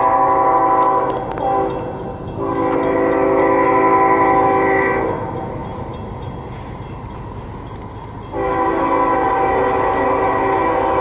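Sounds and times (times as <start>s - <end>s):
locomotive air horn blasts: 0.0s - 5.3s, 8.3s - 11.0s.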